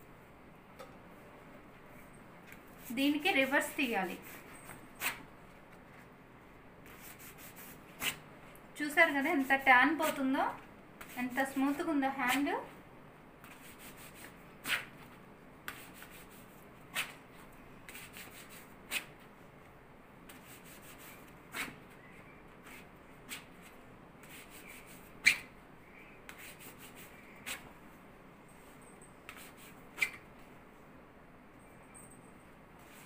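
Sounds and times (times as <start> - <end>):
hand rubbing waxing strip: 6.9 - 8.2, 17.9 - 19.1, 22.6 - 25.5, 26.3 - 27.7.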